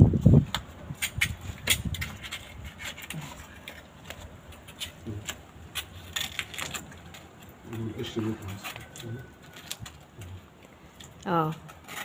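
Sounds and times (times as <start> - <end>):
knife scraping fish scales: 1.0 - 6.9.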